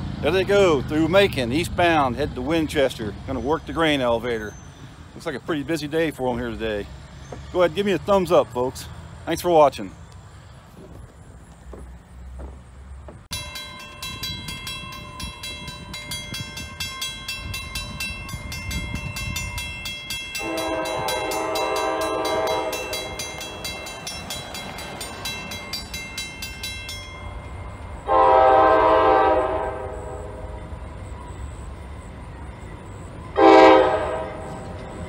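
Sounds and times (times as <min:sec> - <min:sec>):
locomotive rumble: 0:00.0 - 0:35.0
railroad crossing bell ringing: 0:00.4 - 0:08.7, 0:13.3 - 0:35.0
locomotive horn: 0:20.4 - 0:23.6, 0:28.0 - 0:30.8, 0:33.2 - 0:35.0.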